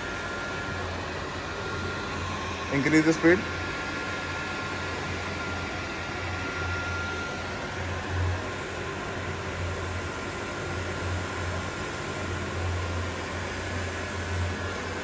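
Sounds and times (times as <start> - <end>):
milling machine humming and whirring: 0.0 - 15.0.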